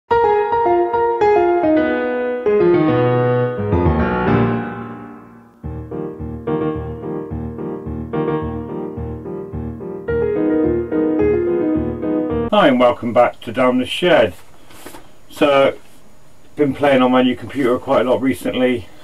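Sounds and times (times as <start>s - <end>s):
pulsing chords over bass beat: 2.5s - 12.5s.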